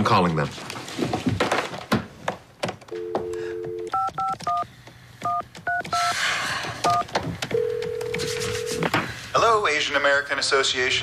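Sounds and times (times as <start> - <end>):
telephone dial tone: 2.9 - 4.6, 5.2 - 6.2, 6.9 - 8.9
touch-tone keypad beeps: 3.0 - 4.6, 5.2 - 6.1, 6.9 - 8.8.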